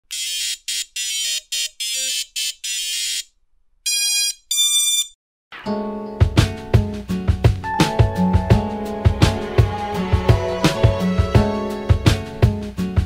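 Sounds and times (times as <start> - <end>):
music with steady drum beat: 6.2 - 13.0.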